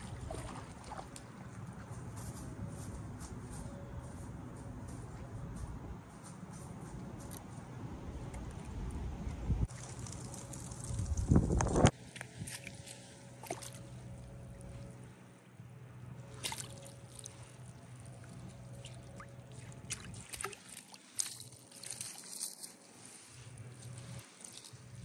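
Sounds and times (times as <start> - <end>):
pond water splashing: 0.0 - 1.6, 11.8 - 15.1, 16.2 - 25.0
net rustling: 20.2 - 25.0.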